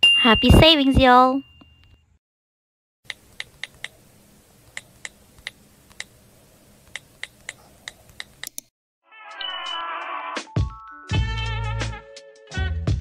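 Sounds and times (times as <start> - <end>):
keyboard keys clicking: 6.9 - 8.7.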